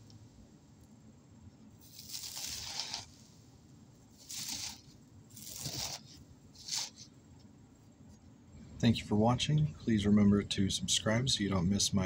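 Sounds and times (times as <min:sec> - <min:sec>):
eggshell flakes crunching: 0:01.8 - 0:03.2.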